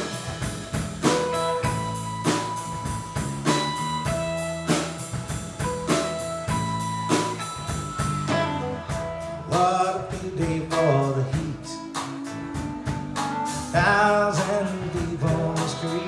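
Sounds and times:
bass guitar: 0.0s - 16.0s
drum kit beat: 0.0s - 16.0s
electric guitars: 0.0s - 16.0s.

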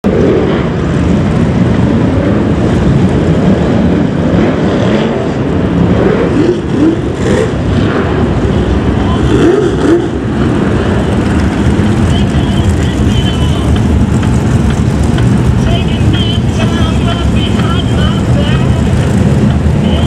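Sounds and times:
race car engines running loudly: 0.0s - 20.0s.

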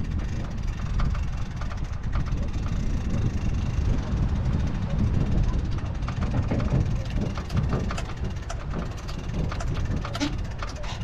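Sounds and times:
waves lapping against boat hull: 3.7s - 11.0s.

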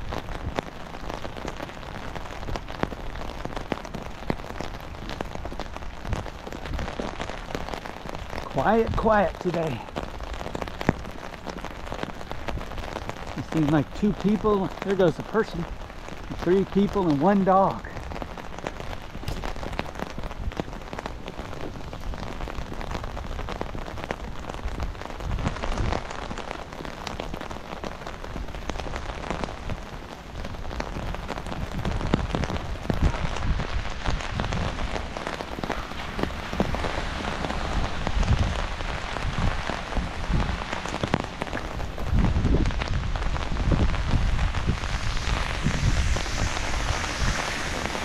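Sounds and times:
rain pattering on umbrella: 0.0s - 48.0s
low rumbles: 30.8s - 48.0s.

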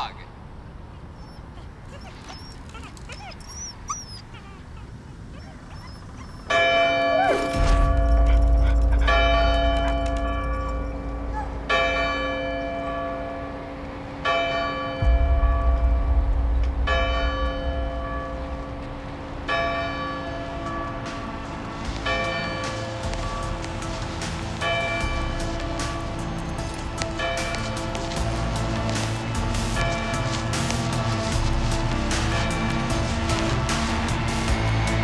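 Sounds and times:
deep low rumble: 6.0s - 35.0s
large bell tolling: 6.5s - 30.6s.

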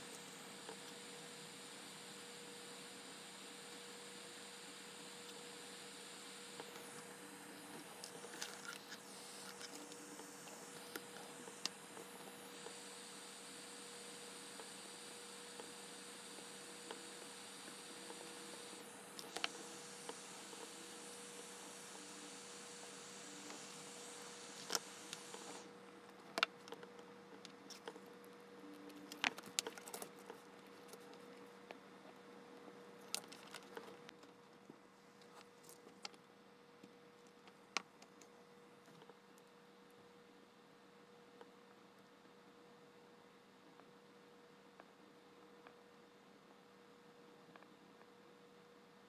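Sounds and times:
high hiss: 0.0s - 25.8s
faint electrical hum: 0.0s - 49.0s.

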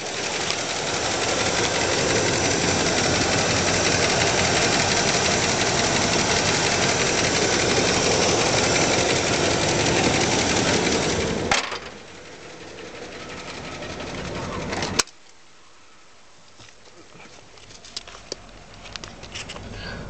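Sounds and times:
truck engine clattering: 0.0s - 15.0s.

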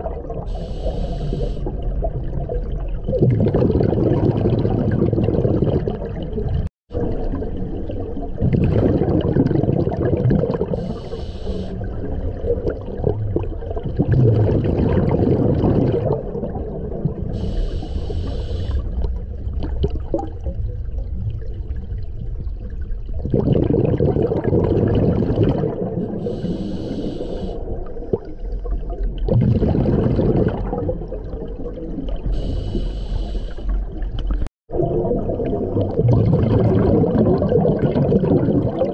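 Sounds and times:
regulator hissing inhalations: 0.5s - 1.7s, 10.8s - 11.8s, 17.4s - 18.8s, 26.2s - 27.6s, 32.4s - 33.8s
bubbling exhalations: 3.0s - 7.1s, 8.4s - 11.0s, 12.3s - 17.5s, 23.2s - 26.5s, 29.2s - 32.6s, 34.3s - 38.9s.

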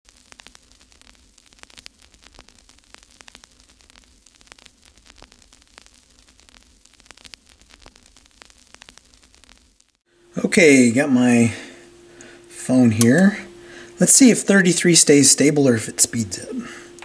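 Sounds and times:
crackling static clicks: 0.0s - 11.3s, 12.1s - 13.4s, 14.1s - 17.0s
soft hiss: 0.1s - 17.0s
low steady hum: 10.1s - 17.0s.

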